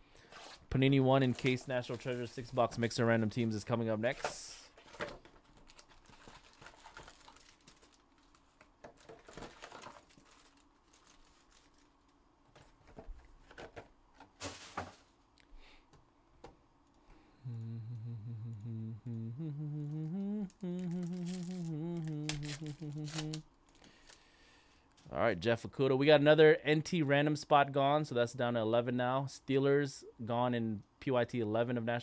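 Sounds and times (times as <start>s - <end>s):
foil packs rustling and crinkling: 4.1s - 15.1s, 20.8s - 24.3s
man humming low note: 17.4s - 23.4s.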